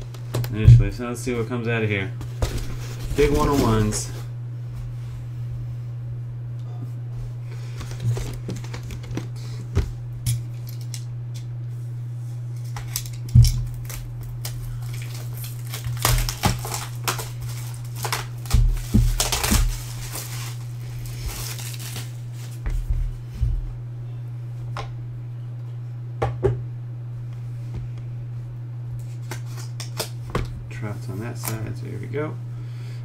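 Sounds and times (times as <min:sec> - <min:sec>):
steady low hum: 0:00.0 - 0:33.0
shrink wrap crinkling: 0:12.6 - 0:22.6.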